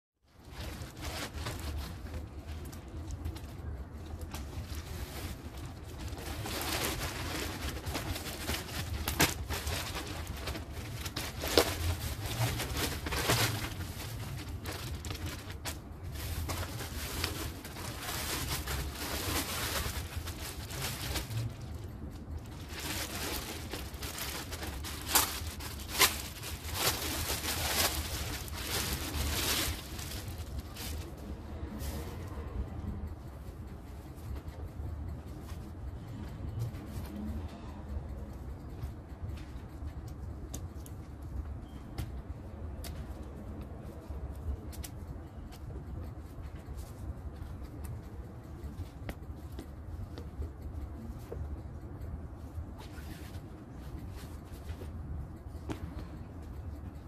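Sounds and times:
plastic and bubble wrap crinkling: 0.4 - 32.0.

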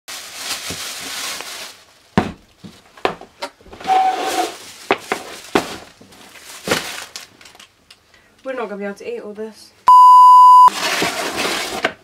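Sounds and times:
plastic bag rustling: 0.1 - 2.9, 3.7 - 7.6
cardboard boxes shuffling: 2.2 - 7.1.

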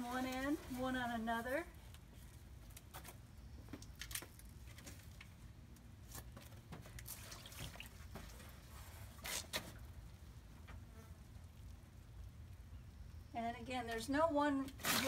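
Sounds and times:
water splashing and dripping: 6.9 - 8.5.

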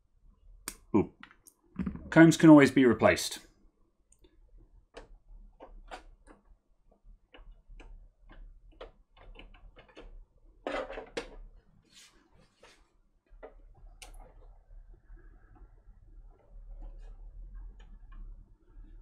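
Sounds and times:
plastic cable combs clicking: 7.2 - 11.4.

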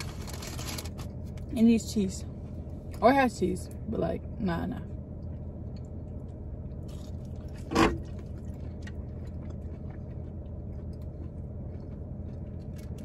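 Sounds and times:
low hum in car cabin: 0.0 - 13.0
people chewing food: 5.2 - 13.0.

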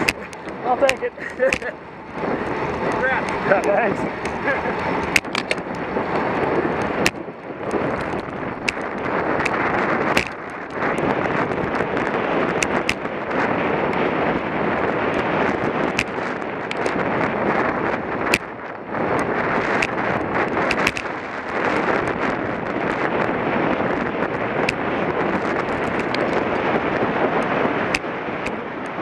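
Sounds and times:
camera mount clicks and knocks: 0.0 - 1.7, 5.0 - 5.8, 20.7 - 21.0
wind rushing over microphone: 0.0 - 29.0.

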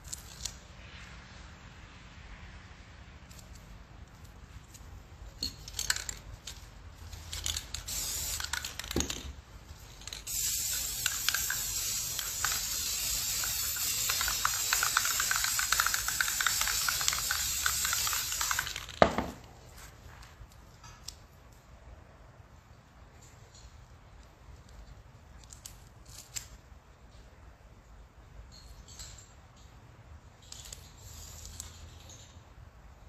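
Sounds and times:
spray paint can hissing: 7.1 - 19.2.

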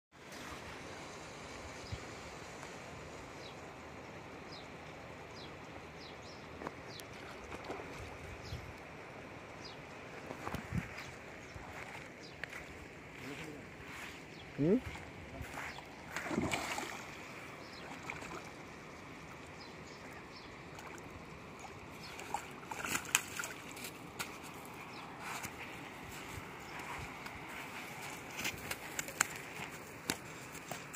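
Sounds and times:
steady outdoor noise: 0.1 - 30.9
gentle water sounds: 0.2 - 30.9
fish splashing in water: 15.4 - 18.6, 20.7 - 23.9.

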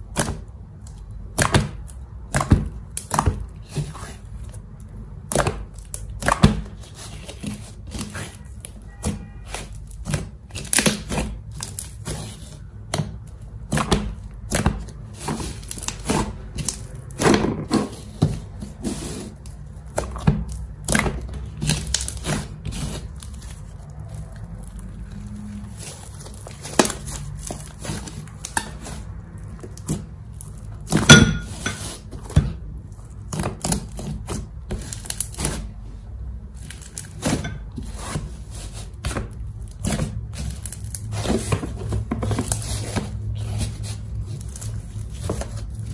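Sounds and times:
slime clicking and popping: 0.0 - 3.6.

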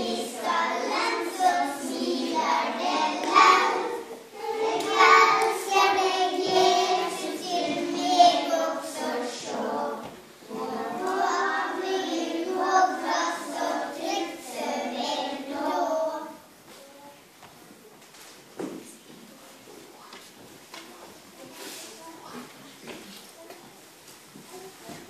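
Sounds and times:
children's choir singing: 0.0 - 16.5.

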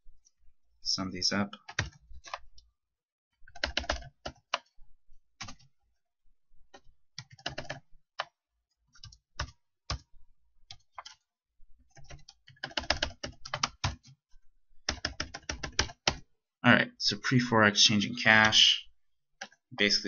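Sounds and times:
keyboard typing: 1.6 - 2.6, 3.5 - 4.8, 5.4 - 5.7, 6.7 - 10.1, 10.7 - 11.3, 11.9 - 14.2, 14.8 - 16.2, 19.4 - 19.9.

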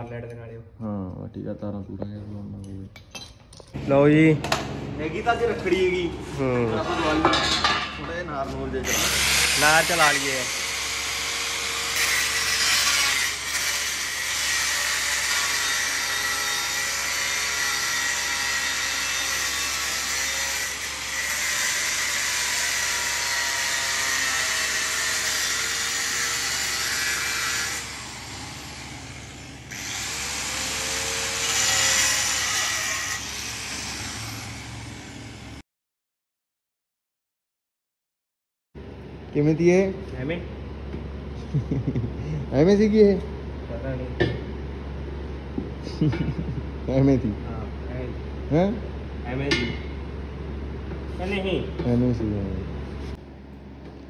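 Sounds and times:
angle grinder cutting steel: 8.8 - 35.6.

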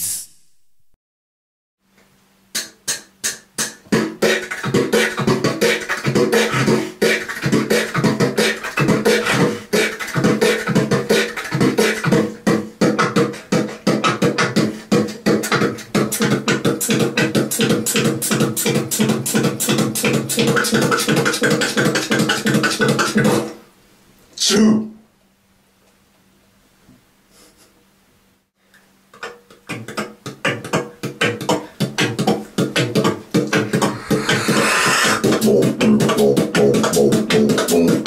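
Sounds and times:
people beatboxing: 2.6 - 23.6, 29.2 - 38.0.

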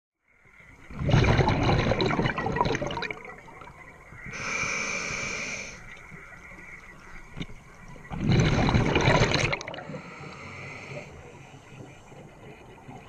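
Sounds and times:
exhaled bubbles underwater: 0.8 - 4.4, 5.8 - 13.0
regulator inhalation hiss: 4.3 - 5.9, 9.9 - 11.6.

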